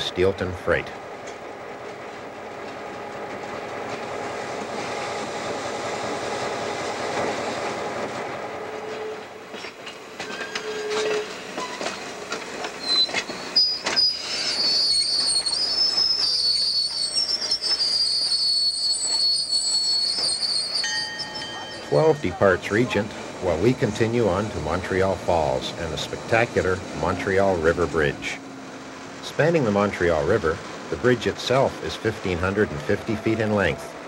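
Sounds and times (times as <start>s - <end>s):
diesel locomotive running: 0.0s - 34.0s
train wheels clicking over rail joints: 1.0s - 34.0s
high-pitched wheel squeal: 10.3s - 12.0s, 12.8s - 28.4s.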